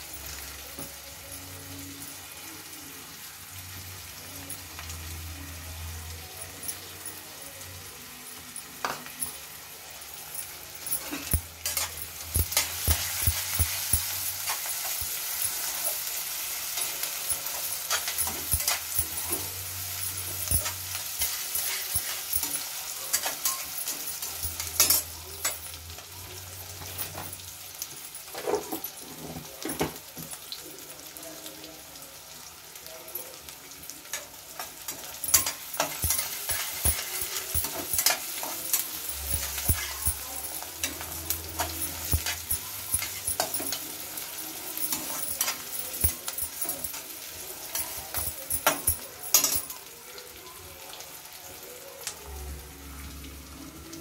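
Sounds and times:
metal spoon clinking and scraping pan: 0.0 - 2.4, 6.2 - 30.5, 33.8 - 49.9
vegetables sizzling in hot oil: 0.0 - 54.0.

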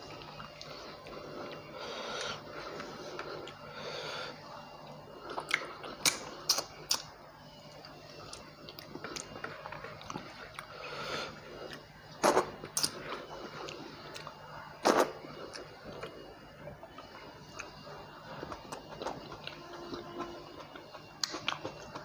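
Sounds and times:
person chewing with mouth clicks: 5.3 - 7.1, 11.6 - 16.2, 18.4 - 22.0.

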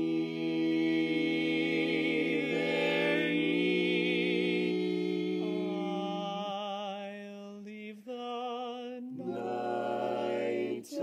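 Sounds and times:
male quartet singing a cappella: 0.0 - 11.0.

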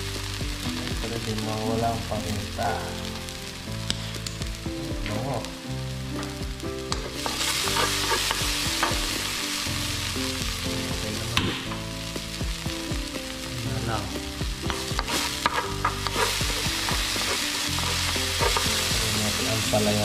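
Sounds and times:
onion sizzling in hot oil: 0.0 - 20.0
utensil clicking against pan: 14.7 - 19.2.

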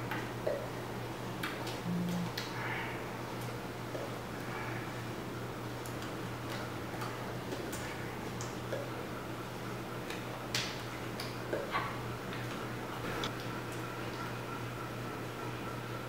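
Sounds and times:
low hum: 1.8 - 2.7.

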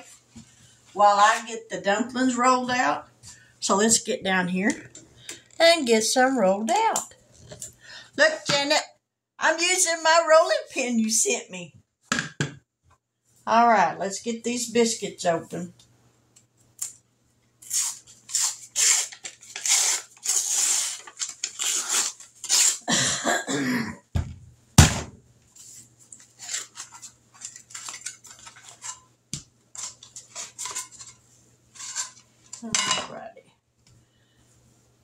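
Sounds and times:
paper wrapper tearing: 17.6 - 22.9, 26.2 - 28.9.

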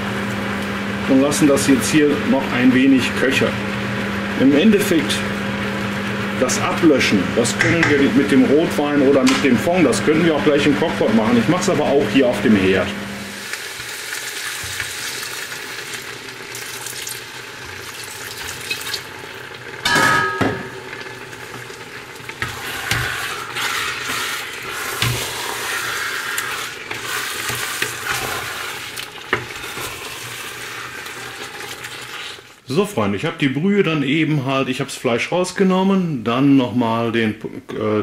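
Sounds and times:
meat and onions sizzling in a pot: 0.0 - 32.7
wooden spatula scraping: 22.2 - 32.6.

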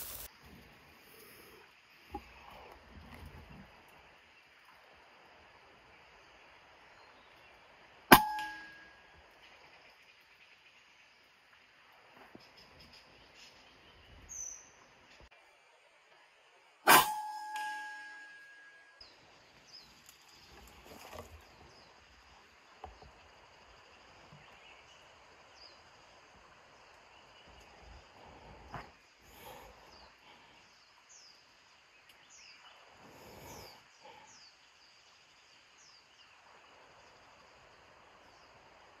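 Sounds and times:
soft steady hiss: 0.0 - 39.0.

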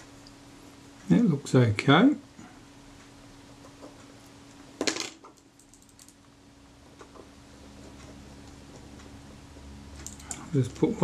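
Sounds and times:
metal tools clicking and tapping: 10.0 - 11.0.

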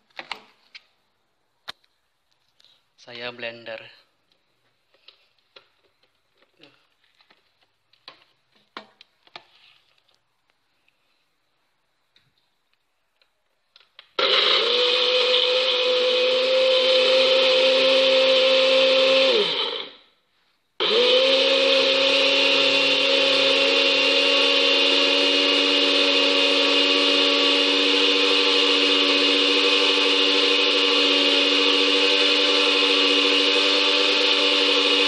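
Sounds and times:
electric blender motor: 14.2 - 20.0, 20.8 - 35.0.

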